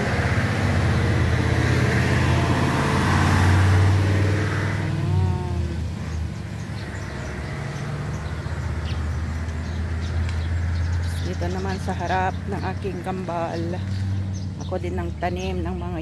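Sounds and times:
vehicle engine passing by: 0.0s - 16.0s.

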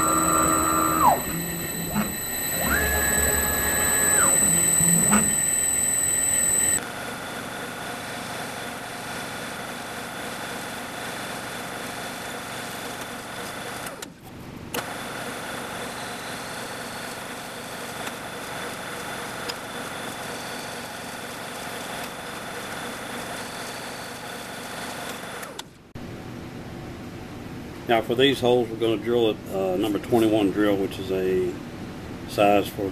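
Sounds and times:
drill press drilling aluminum: 0.0s - 6.8s.

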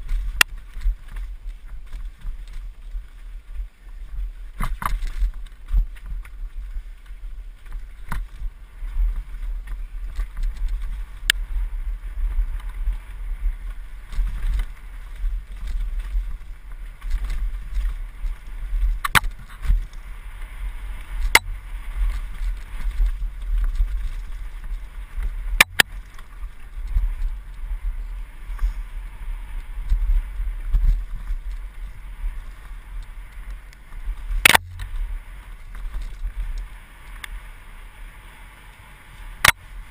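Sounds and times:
mountain bike rumbling on trail: 0.0s - 39.9s
bike clacking over bumps: 29.5s - 37.3s.

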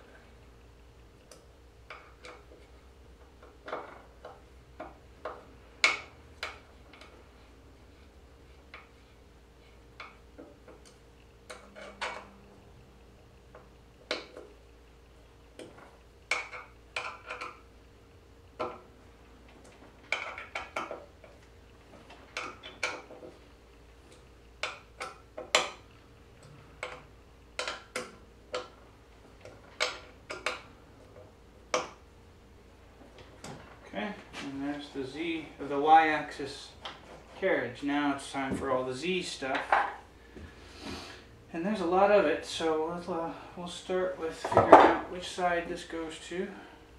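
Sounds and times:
faint steady hum: 0.0s - 46.9s.

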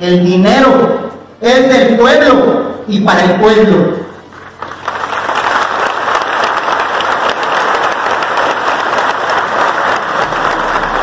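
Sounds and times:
large audience applauding: 4.3s - 11.0s.

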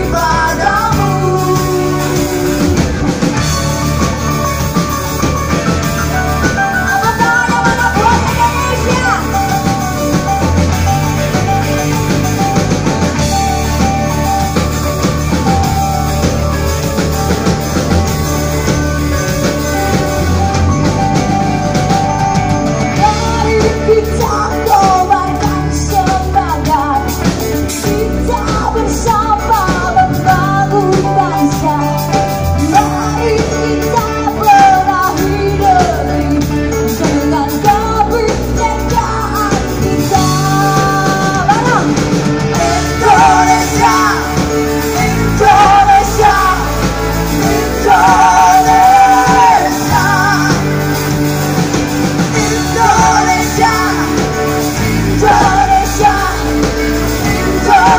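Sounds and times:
woman singing: 0.0s - 3.3s, 6.4s - 10.5s, 22.9s - 57.9s
live rock band: 0.0s - 57.9s.

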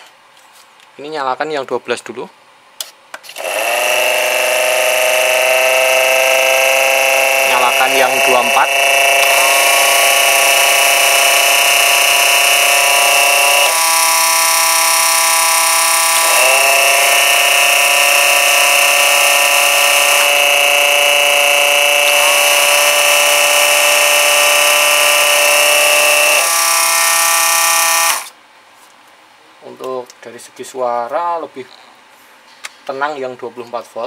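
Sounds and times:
electric pump motor whine: 3.3s - 28.4s.

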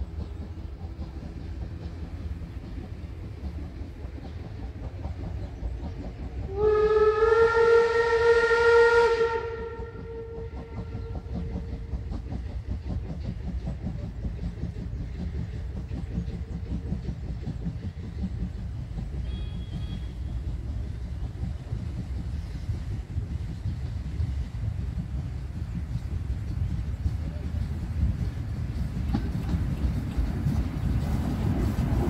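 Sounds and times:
steam locomotive whistle: 6.4s - 11.6s, 19.2s - 20.4s.

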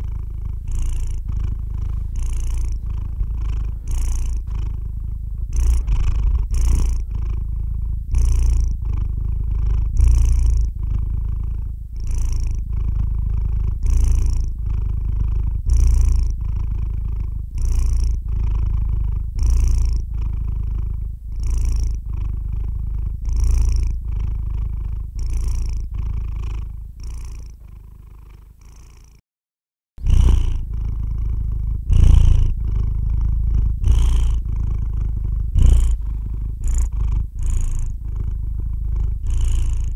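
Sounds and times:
cat purring: 0.0s - 29.2s, 30.0s - 39.9s.

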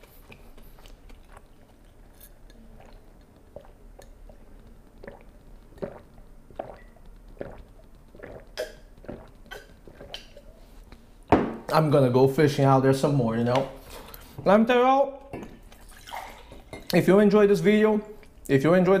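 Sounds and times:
man swallowing water: 0.3s - 11.0s.

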